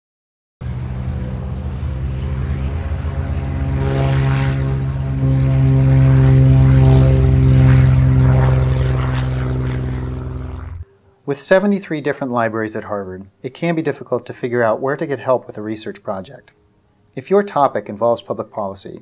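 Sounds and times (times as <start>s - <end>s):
propeller airplane engine drone: 0.6s - 11.2s.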